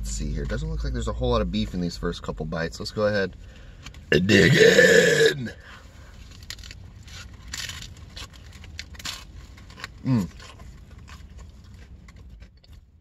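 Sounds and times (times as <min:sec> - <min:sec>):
crunching and chewing taco shell: 0:03.4 - 0:13.0.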